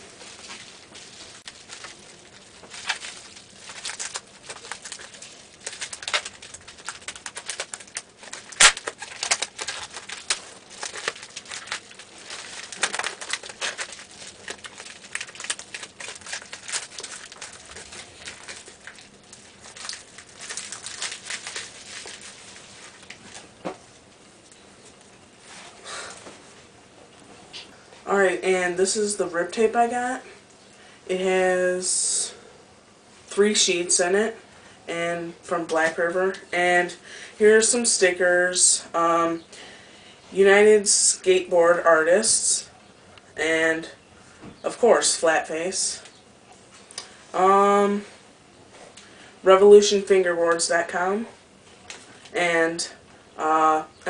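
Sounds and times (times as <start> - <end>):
packaging rustling and crinkling: 0.0 - 25.1
paper envelope tearing: 1.3 - 23.4.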